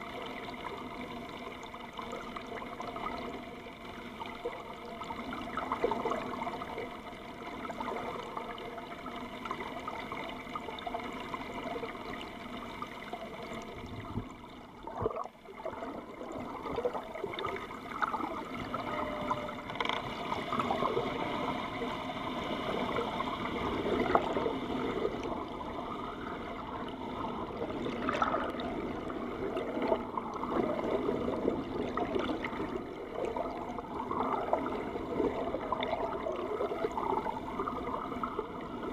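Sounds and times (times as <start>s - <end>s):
steady hum: 0.0s - 38.9s
water rushing and gurgling: 0.0s - 38.9s.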